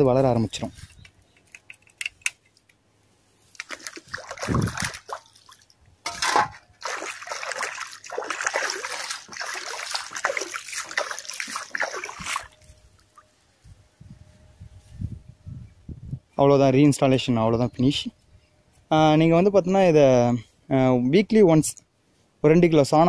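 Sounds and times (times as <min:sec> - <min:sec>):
water sloshing by hand: 0:03.4 - 0:13.4
loud water splash: 0:03.6 - 0:12.6.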